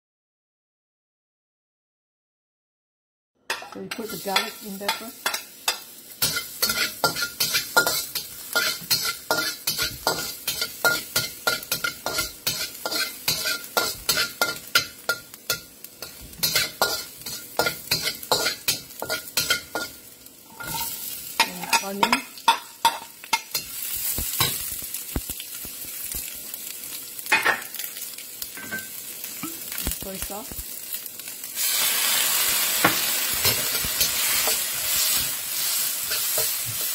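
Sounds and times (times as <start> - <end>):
metal spatula scraping a wok: 3.5 - 24.6, 32.8 - 36.9
garlic sizzling in oil: 3.5 - 36.9
onions sizzling in a wok: 3.5 - 36.9.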